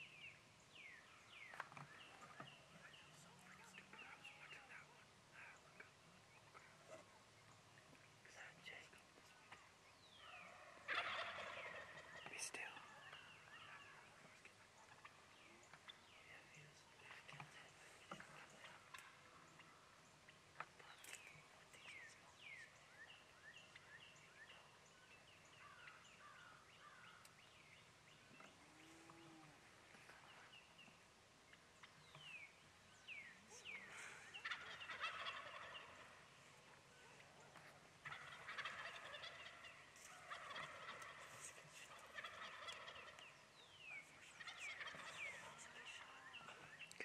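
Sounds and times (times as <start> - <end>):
songbird chirps: 0.0 - 47.0
turkey gobbling: 10.2 - 16.0, 33.7 - 36.8, 37.6 - 46.3.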